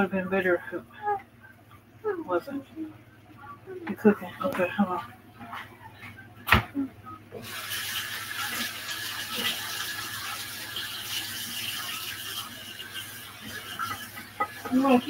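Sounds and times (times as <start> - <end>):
meat sizzling in a skillet: 7.4 - 15.0.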